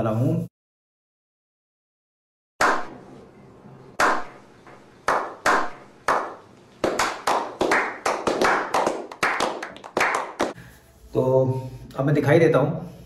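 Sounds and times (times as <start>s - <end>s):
people clapping hands: 2.6s - 2.9s, 4.0s - 10.6s.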